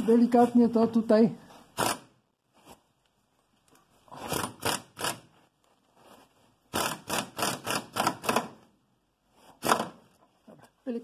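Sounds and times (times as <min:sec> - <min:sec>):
hand ratchet clicking: 0:04.3 - 0:05.3, 0:06.7 - 0:08.6.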